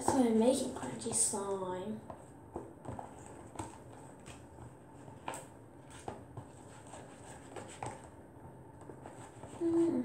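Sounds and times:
utensil stirring in plastic bowl: 0:02.0 - 0:09.9.

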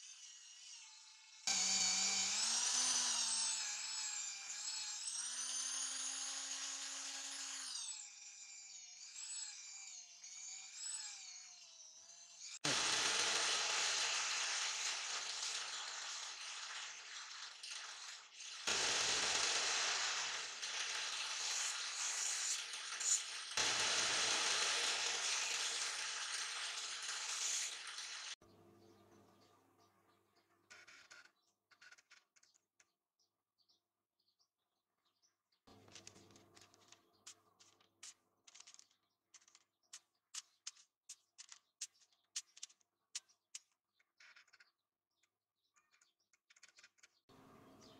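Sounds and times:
knife grinding on abrasive wheel: 0:00.0 - 0:28.4.

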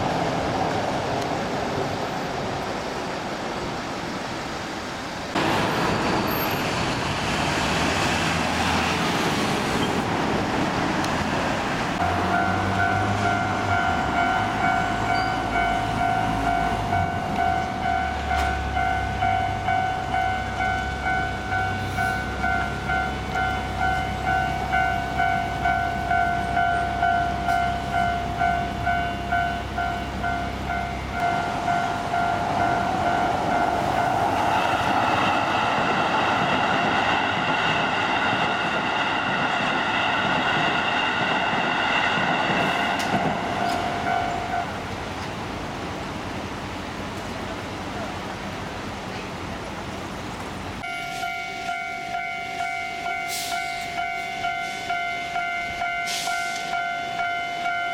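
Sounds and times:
road traffic: 0:00.0 - 0:57.9
train approaching: 0:00.0 - 0:57.9
level crossing warning bell: 0:12.0 - 0:35.0, 0:42.7 - 0:44.8, 0:50.8 - 0:57.9.

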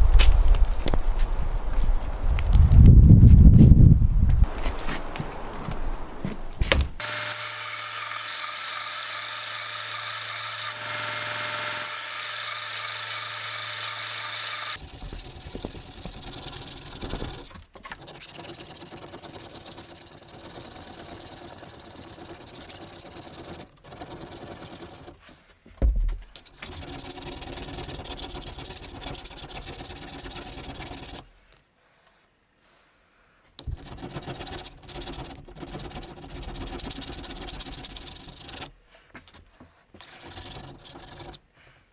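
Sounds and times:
belt sander grinding metal: 0:07.0 - 0:25.2, 0:26.4 - 0:31.3, 0:33.6 - 0:38.7, 0:40.0 - 0:41.4
file scraping metal: 0:07.0 - 0:25.2, 0:26.4 - 0:31.3, 0:33.6 - 0:38.8, 0:40.0 - 0:41.5.

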